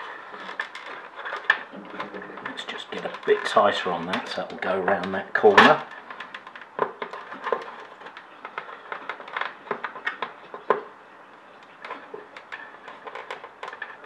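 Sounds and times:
small plastic clicks and scrapes: 0.0 - 14.0.

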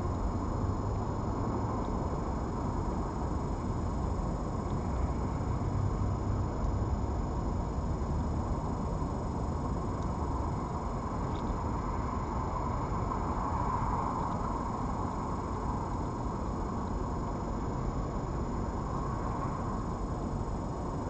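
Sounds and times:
faint high whine: 0.0 - 21.0
low rumble and hiss: 0.0 - 21.0
tiny ticks: 10.0 - 10.2, 11.2 - 11.6, 14.1 - 14.5.

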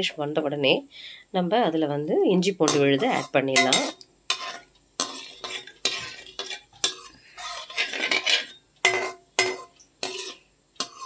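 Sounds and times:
metal spatula scraping a pan: 2.5 - 11.0.

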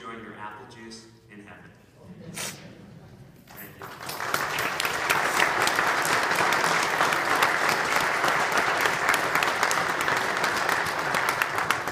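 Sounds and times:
congregation applauding: 3.4 - 11.9.

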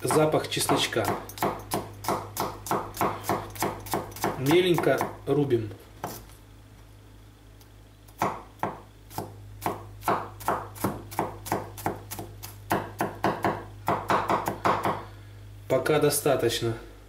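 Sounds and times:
knife chopping on wooden board: 0.1 - 5.2, 8.2 - 15.0.

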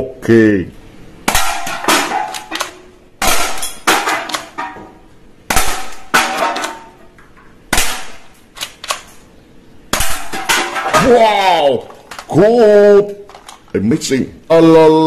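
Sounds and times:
toy pistol shots: 1.3 - 4.6, 7.7 - 9.1
cans knocked off a stack: 10.0 - 11.2.

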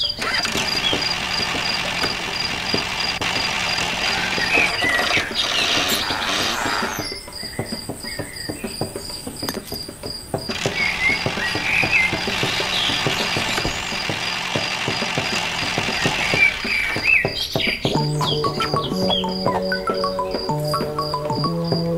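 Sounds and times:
small geared motor ticking: 0.0 - 7.9, 10.4 - 21.9
birds chirping: 0.0 - 21.9
pulsing high trill: 18.0 - 21.9.

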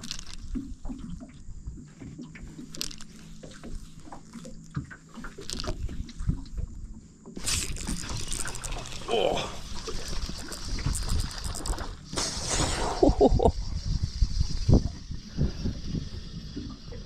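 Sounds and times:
fishing reel clicks and knocks: 0.0 - 1.2, 2.6 - 6.0, 7.4 - 12.1.

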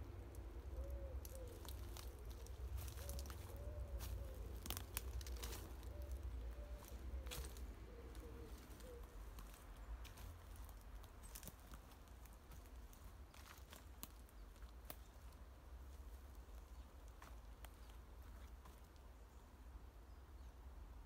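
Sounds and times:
pigeon cooing: 0.6 - 9.6
footsteps on wood chips: 1.2 - 15.3.

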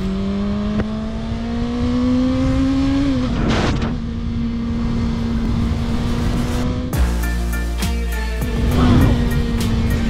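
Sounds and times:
motorcycle engine running: 3.9 - 10.0.

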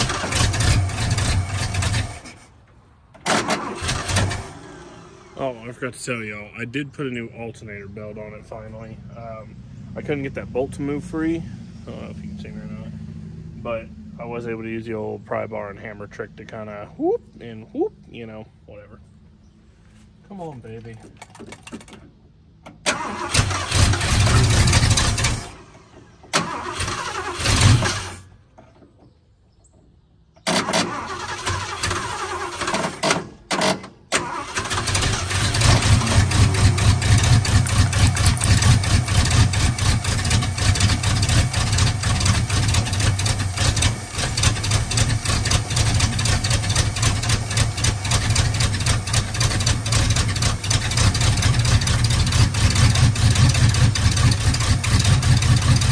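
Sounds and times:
engine cranking and starting: 0.0 - 5.8, 20.8 - 29.8, 30.4 - 55.9
engine running steadily: 0.0 - 29.1, 30.4 - 55.9.

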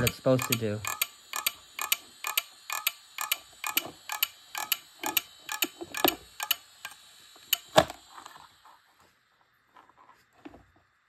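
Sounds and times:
hard drive clicking: 0.0 - 8.0.

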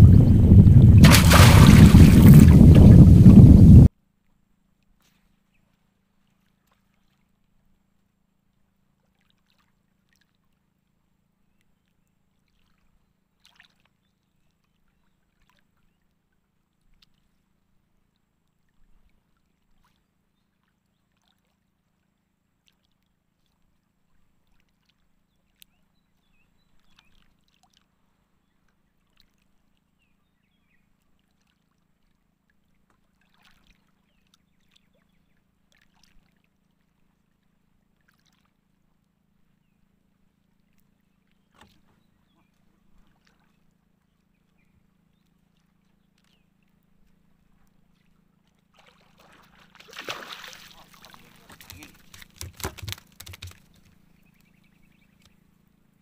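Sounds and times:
faint low hum: 0.0 - 3.9.

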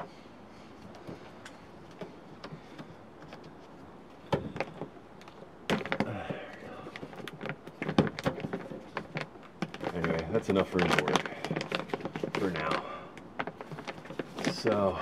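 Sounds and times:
plastic sheet crinkling: 4.4 - 15.0.

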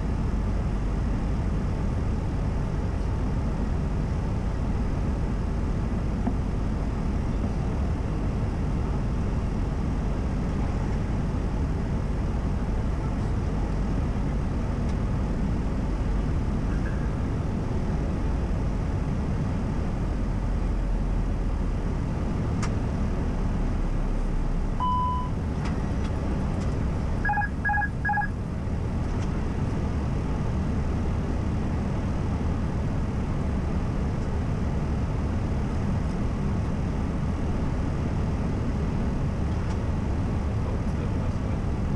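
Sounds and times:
cockpit airflow and engine noise: 0.0 - 41.9
short beeps: 24.8 - 25.4, 27.2 - 28.3.

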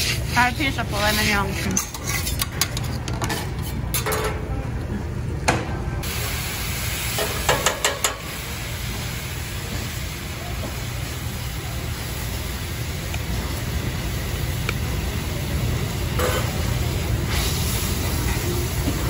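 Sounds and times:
metal scraper scraping steel: 0.0 - 4.1
liquid sizzling on a griddle: 6.0 - 19.0.

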